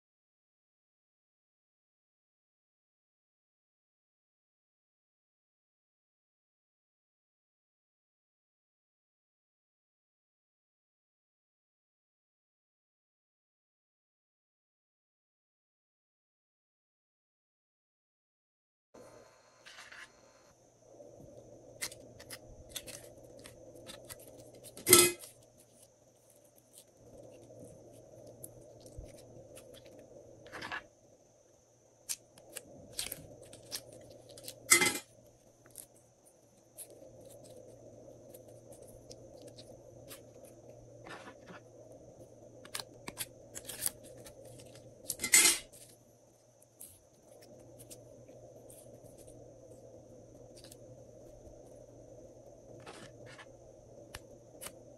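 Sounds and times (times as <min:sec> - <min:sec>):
faint steady hum: 0:19.0 - 0:54.9.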